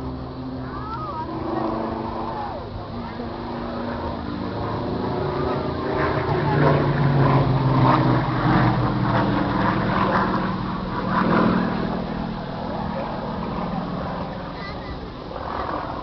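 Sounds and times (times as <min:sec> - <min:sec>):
propeller plane engine droning: 0:00.0 - 0:16.0.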